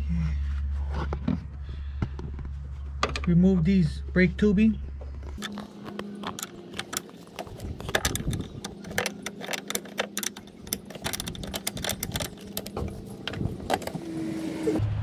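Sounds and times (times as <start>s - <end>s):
steady low hum: 0.0s - 15.0s
wrench metallic clicks: 5.4s - 14.0s.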